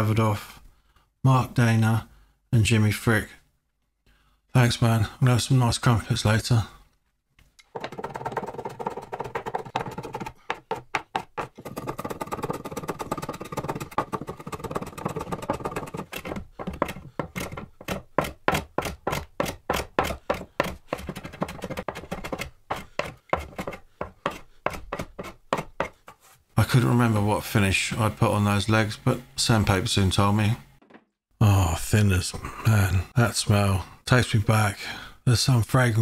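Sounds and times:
hand plane scraping wood: 7.8 - 26.4.

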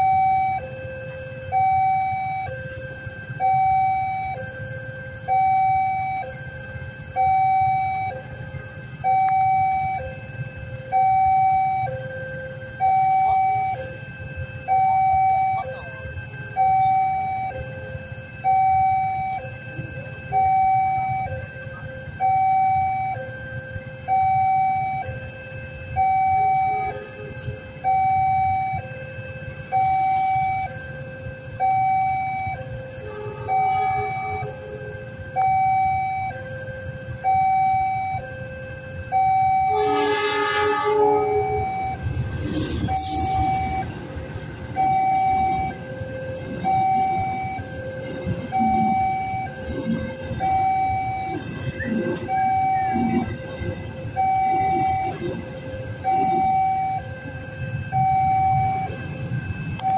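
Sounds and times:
motorcycle engines idling: 0.0 - 59.9
two-tone crossing alarm: 0.0 - 59.9
locomotive horn: 18.4 - 30.9, 32.2 - 36.4, 39.0 - 59.9
train passing: 39.1 - 59.8.

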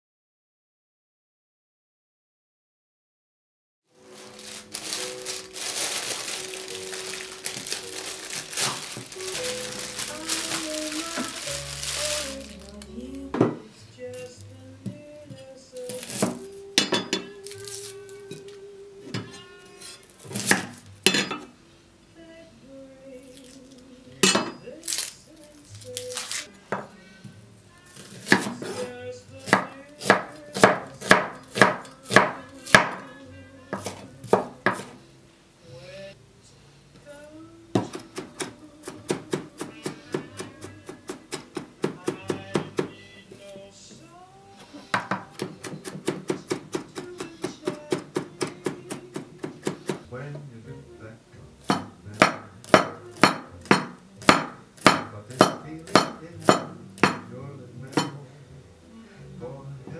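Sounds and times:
soft background music: 3.9 - 59.9
knife chopping on wooden board: 28.2 - 33.0, 51.7 - 57.3.

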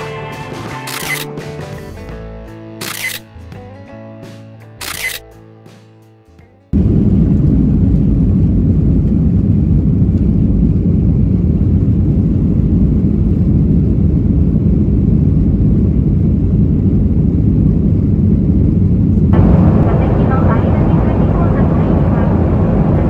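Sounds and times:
jet engines rumbling: 6.8 - 23.0.

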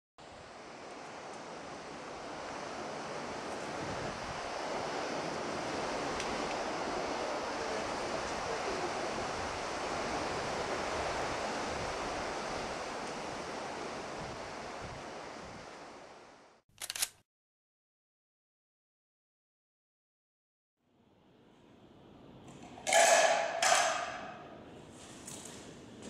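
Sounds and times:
wind and surf rushing: 0.2 - 16.6
wind buffeting microphone: 2.1 - 15.9.

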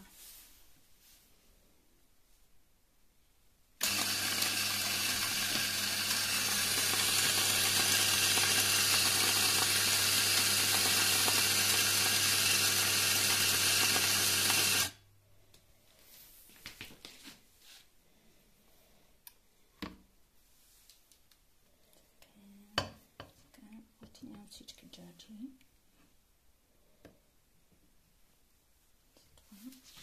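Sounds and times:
coffee grinder whirring: 3.8 - 15.0.

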